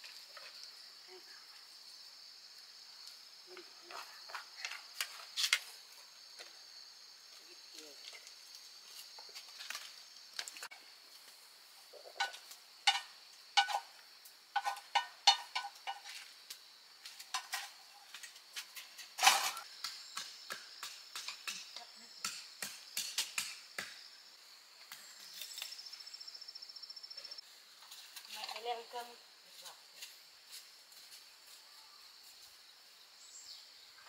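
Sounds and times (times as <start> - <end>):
insects chirping: 0.0 - 34.0
chopsticks scraping a metal pan: 12.2 - 13.9, 14.6 - 16.2.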